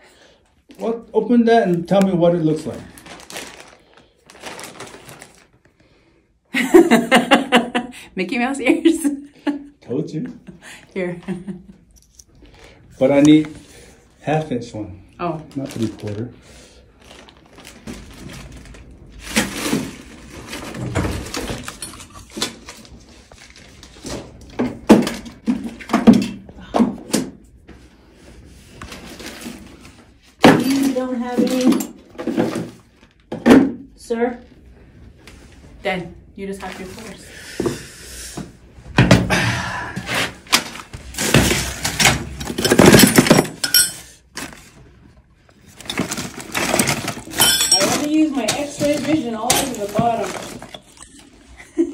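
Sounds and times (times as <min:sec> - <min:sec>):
plastic bag rustling: 0:01.8 - 0:05.9, 0:13.0 - 0:24.6, 0:27.9 - 0:33.3, 0:36.5 - 0:37.2, 0:40.4 - 0:51.9
plastic fittings and tools clattering: 0:19.2 - 0:23.4, 0:40.5 - 0:44.6, 0:45.6 - 0:51.4.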